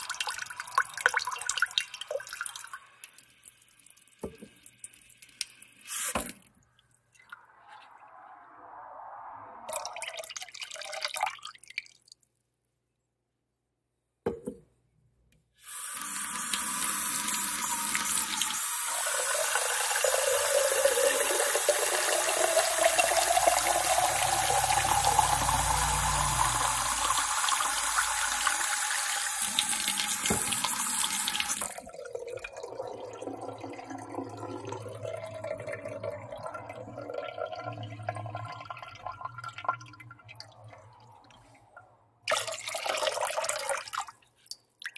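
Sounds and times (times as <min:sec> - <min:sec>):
water trickling and dripping: 0:00.0 - 0:08.5, 0:17.5 - 0:42.6
tap water running hard: 0:15.7 - 0:31.8.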